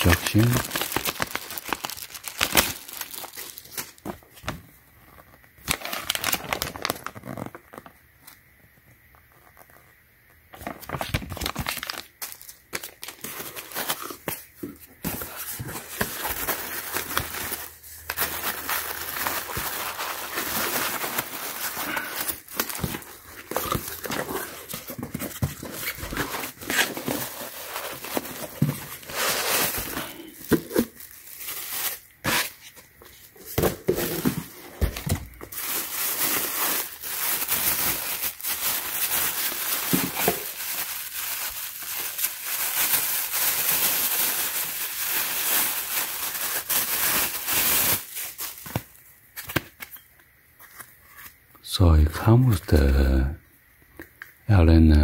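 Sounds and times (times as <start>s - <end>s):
plastic packaging crinkling: 0.0s - 8.4s, 10.5s - 50.0s
cardboard and foam shuffling: 15.0s - 30.3s.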